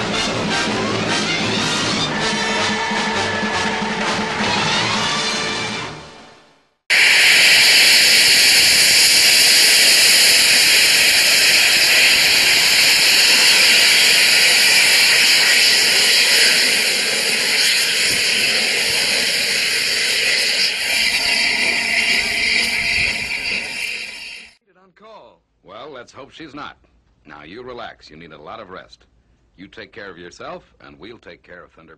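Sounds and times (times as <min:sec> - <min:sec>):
steam hissing from locomotive: 0:06.9 - 0:24.6.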